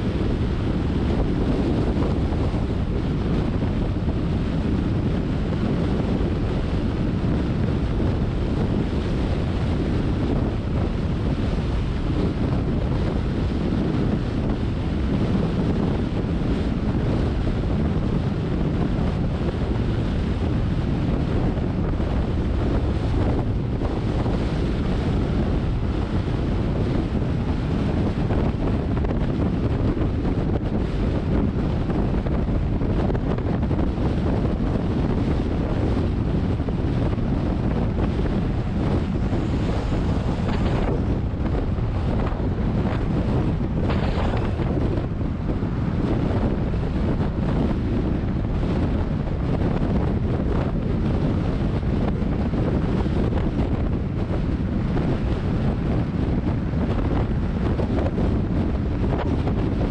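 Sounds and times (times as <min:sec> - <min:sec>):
wind buffeting microphone: 0:00.0 - 0:59.9
tyre and road noise: 0:36.0 - 0:49.4.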